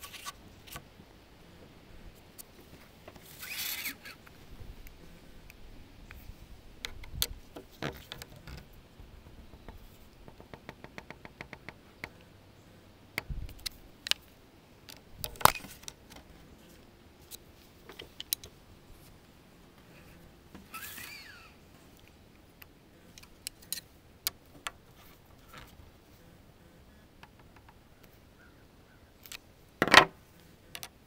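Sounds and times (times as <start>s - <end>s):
small metal clicks and knocks: 6.8s - 12.2s, 17.2s - 18.6s, 22.0s - 24.8s, 29.2s - 31.0s.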